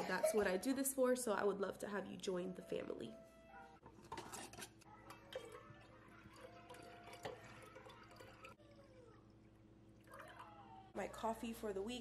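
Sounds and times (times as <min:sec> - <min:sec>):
coffee pouring into glass jar: 0:04.1 - 0:08.9.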